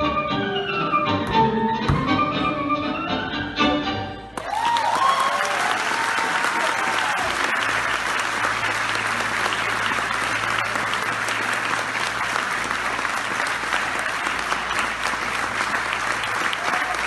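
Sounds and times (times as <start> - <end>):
audience applauding: 4.4 - 17.0.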